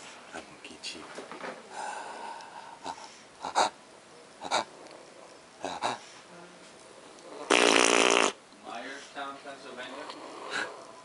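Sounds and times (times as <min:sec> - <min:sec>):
loud rasping breath: 0:01.7 - 0:03.7, 0:10.2 - 0:10.9.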